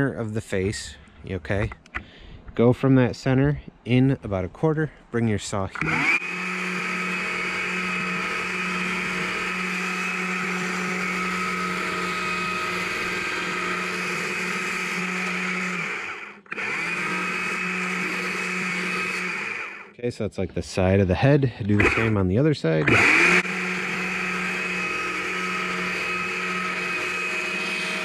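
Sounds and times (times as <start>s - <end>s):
electric chainsaw cutting log: 5.7s - 20.0s, 21.8s - 22.2s, 22.8s - 28.0s.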